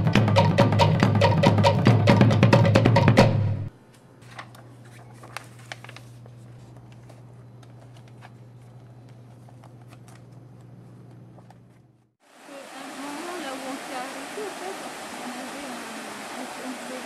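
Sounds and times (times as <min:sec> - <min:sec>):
paper rustling: 0:04.2 - 0:12.0.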